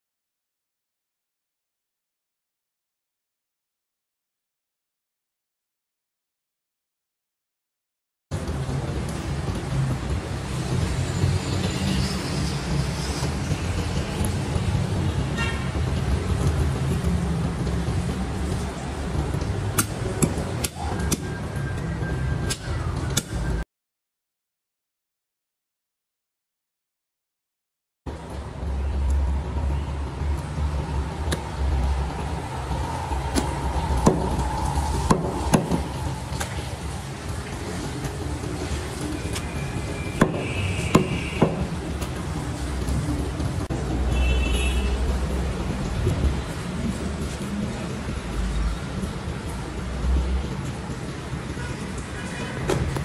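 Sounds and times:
road traffic rumble: 0:08.3 - 0:23.6, 0:28.1 - 0:53.0.

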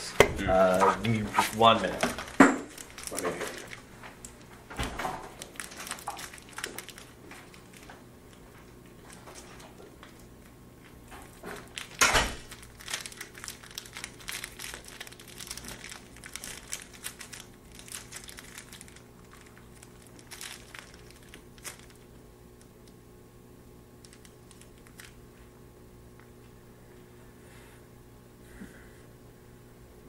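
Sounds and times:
plastic wrapper crinkling: 0:00.6 - 0:23.0, 0:23.9 - 0:25.2.

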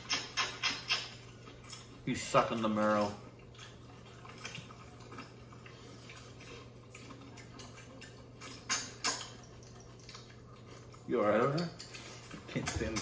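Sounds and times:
wet mouth smacks and chewing: 0:00.0 - 0:02.0, 0:03.4 - 0:12.4.

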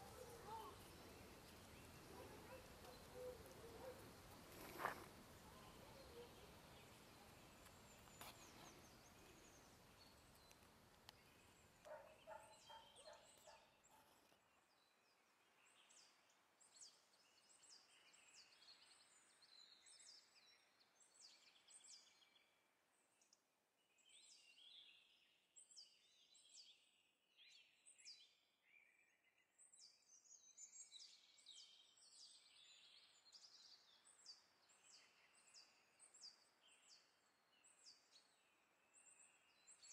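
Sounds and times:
faint birdsong chirps: 0:00.0 - 0:39.9.

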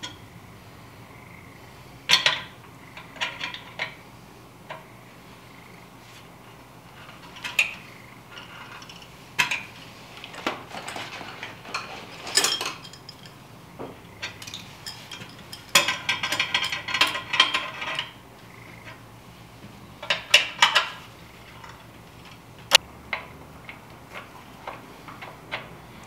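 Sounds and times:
hand tools clinking on metal fitting: 0:10.7 - 0:13.4, 0:14.2 - 0:18.2.

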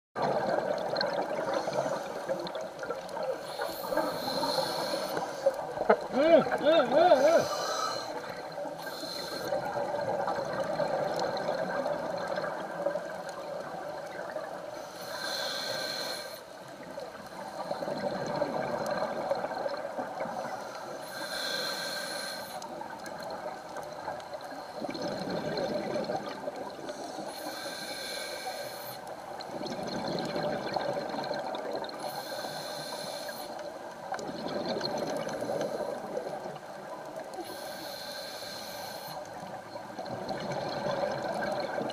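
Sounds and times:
regulator hiss on inhale: 0:01.4 - 0:02.5, 0:03.3 - 0:05.6, 0:07.2 - 0:10.2, 0:14.7 - 0:17.8, 0:20.2 - 0:22.8, 0:26.8 - 0:29.2, 0:32.0 - 0:33.8, 0:35.2 - 0:36.7, 0:37.3 - 0:39.5
bubbling on exhale: 0:24.8 - 0:26.6, 0:29.5 - 0:32.0, 0:40.0 - 0:41.9.

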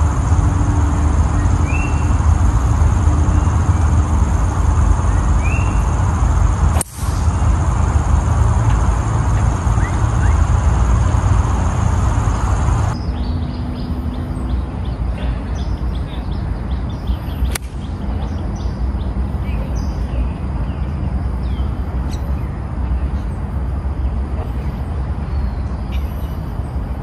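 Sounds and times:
birds chirping: 0:00.0 - 0:06.6, 0:07.2 - 0:23.4
low outdoor rumble: 0:00.0 - 0:27.0
steady noisy rumble: 0:00.0 - 0:27.0
golf club striking ball: 0:17.5 - 0:17.8.

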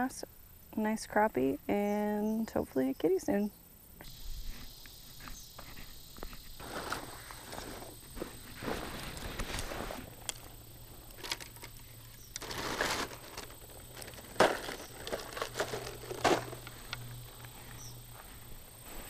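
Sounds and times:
plastic bag crinkling: 0:12.4 - 0:16.9.

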